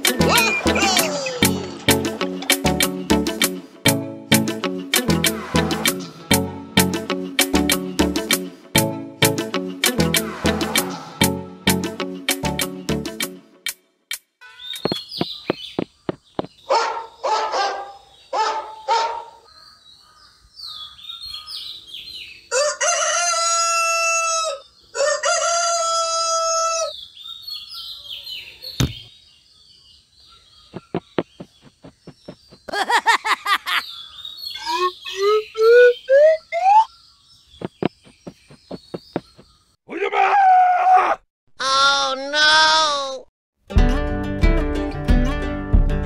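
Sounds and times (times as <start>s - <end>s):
short bird chirps: 14.4s - 16.5s, 33.8s - 39.7s
rooster crowing: 22.5s - 26.9s
quick rising squeaky glides: 34.6s - 36.9s.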